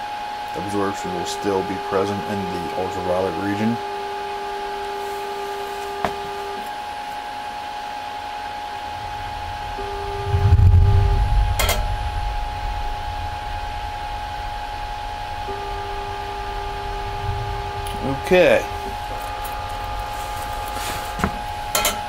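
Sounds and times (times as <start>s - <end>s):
instrument hum: 0.0s - 22.0s
motor tone: 0.0s - 22.0s
low rumble: 8.8s - 21.8s.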